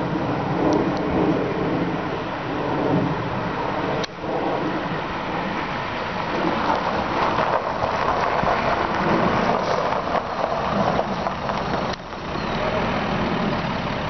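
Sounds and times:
car engine driving: 0.0 - 14.0
tyres crunching on gravel: 6.0 - 14.0.

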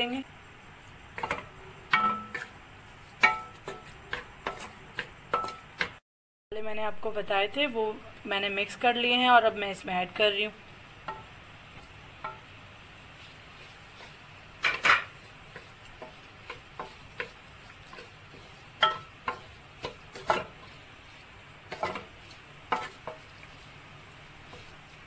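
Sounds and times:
spatula knocking and scraping pan: 1.1 - 6.0, 11.0 - 12.5, 13.3 - 25.0.

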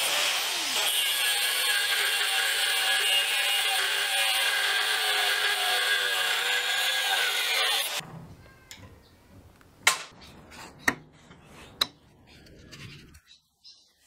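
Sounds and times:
angle grinder cutting steel: 0.0 - 8.0.

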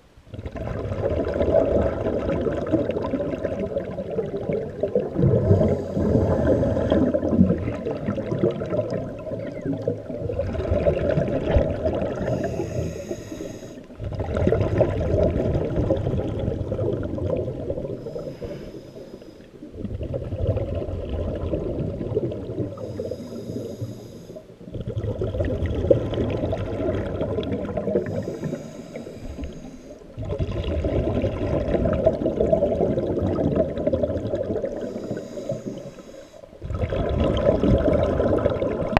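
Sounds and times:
exhaust bubbles bubbling: 0.3 - 12.8, 13.9 - 18.3, 19.6 - 23.2, 24.6 - 35.6, 36.6 - 38.9
regulator hissing inhale: 5.5 - 7.2, 12.2 - 13.9, 18.0 - 19.6, 22.7 - 24.5, 28.0 - 30.2, 34.8 - 36.6.

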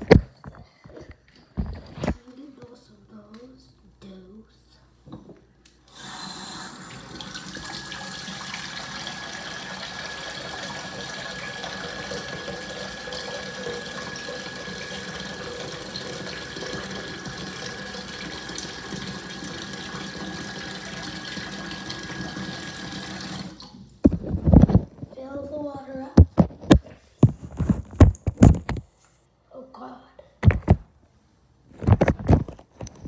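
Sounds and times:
water running from a tap: 5.9 - 23.8.

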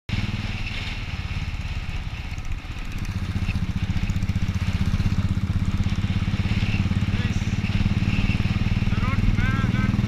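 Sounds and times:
motorcycle engine running: 0.1 - 10.0.

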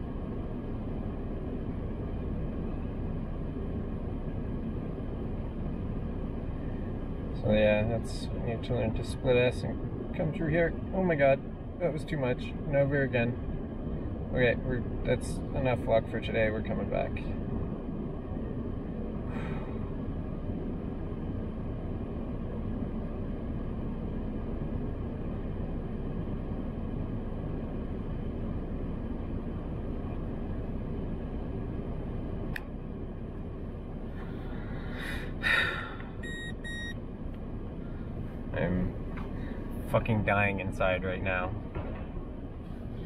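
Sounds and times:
car cabin rumble: 0.0 - 43.0
short electronic beeps: 36.2 - 37.0.

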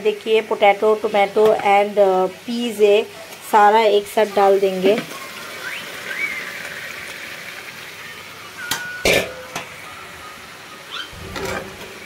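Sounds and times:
meat sizzling in a pan: 1.7 - 8.3.

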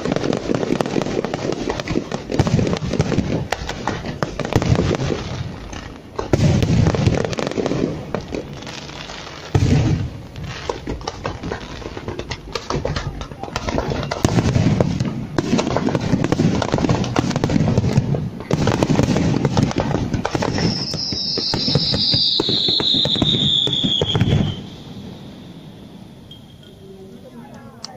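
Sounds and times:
fireworks booms and crackling: 0.0 - 26.4
high falling whistle: 20.5 - 27.0.

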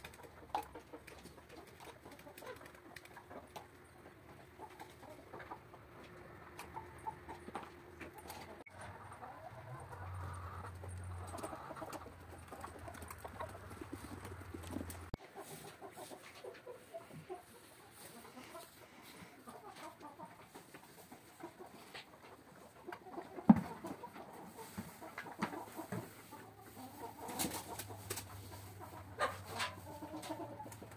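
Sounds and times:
chickens clucking: 0.0 - 30.9
light rustles and ticks: 10.6 - 16.6.

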